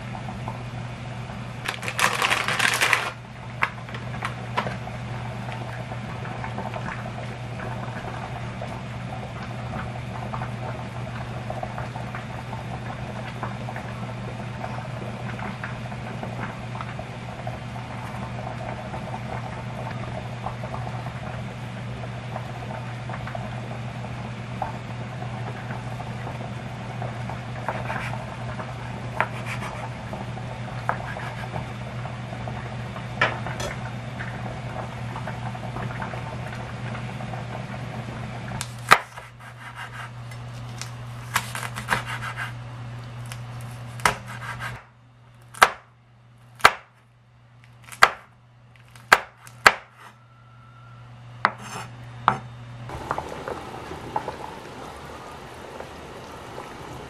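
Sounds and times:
water boiling in pot: 0.0s - 41.2s, 52.9s - 57.0s
knife chopping on wooden board: 41.3s - 42.5s, 44.0s - 44.9s
low hum: 52.9s - 57.0s.

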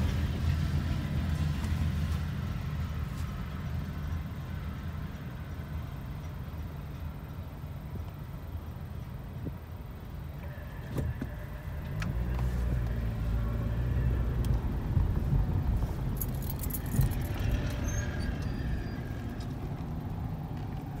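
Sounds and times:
car engine and road noise: 0.0s - 21.0s
light rattling: 15.6s - 19.9s.

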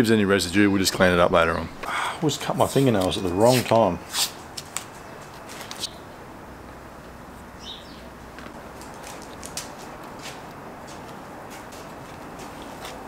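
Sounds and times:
steady background hiss: 0.0s - 13.0s
tape and paper rustling: 2.8s - 5.9s, 8.7s - 13.0s
bird chirp: 4.9s - 6.2s, 7.6s - 8.2s.

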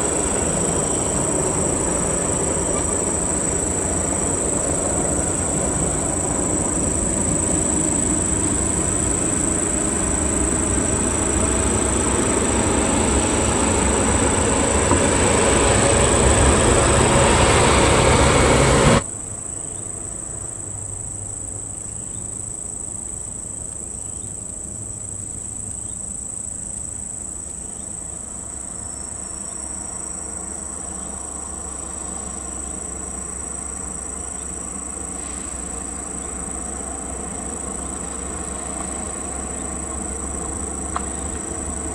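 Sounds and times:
heavy truck engines running: 0.0s - 19.1s, 27.9s - 41.9s
heavy truck driving past: 0.0s - 21.2s, 28.3s - 41.9s
high insect drone: 0.0s - 41.9s.

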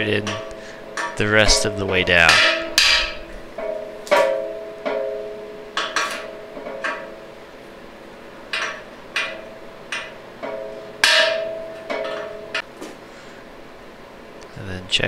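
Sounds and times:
hammer striking metal socket: 0.0s - 7.2s, 8.5s - 12.6s.

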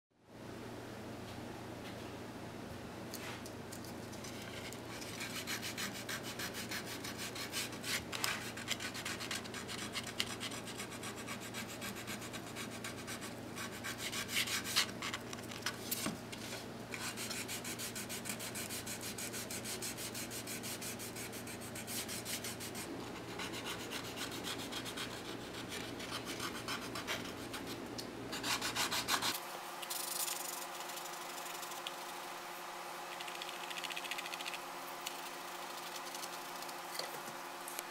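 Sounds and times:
sandpaper rubbing on wood: 5.0s - 14.9s, 17.0s - 32.1s.

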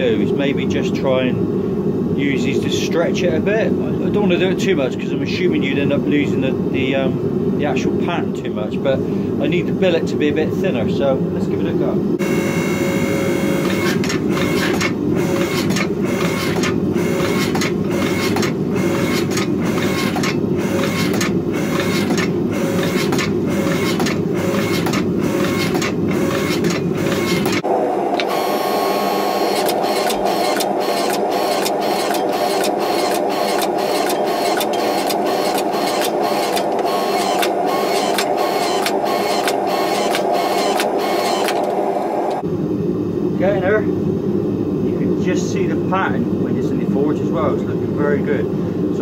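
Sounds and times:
hydraulic press motor pulsing: 12.2s - 42.4s.

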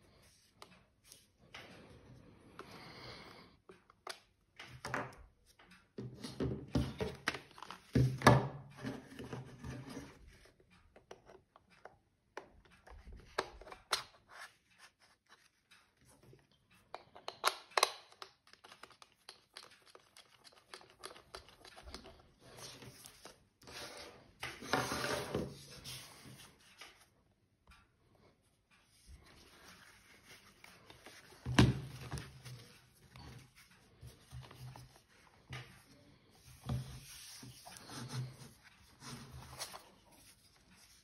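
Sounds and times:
plastic parts clicking and knocking: 16.5s - 23.2s.

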